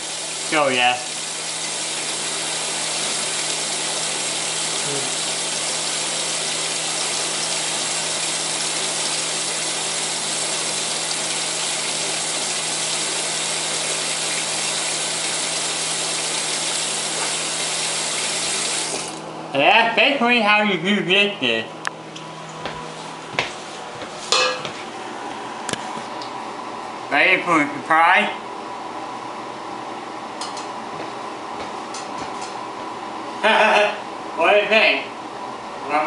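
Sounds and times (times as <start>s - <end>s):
tap running into sink: 18.8s - 19.2s.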